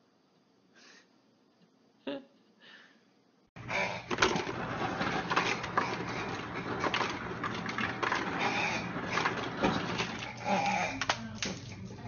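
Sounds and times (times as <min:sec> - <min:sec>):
knocks and clatters: 0:04.0 - 0:12.0
dog claws scratching a drawer: 0:04.1 - 0:11.9.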